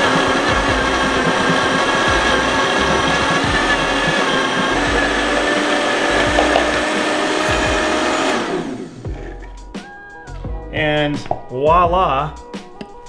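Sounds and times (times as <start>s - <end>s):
blender grinding sugar: 0.0s - 9.4s.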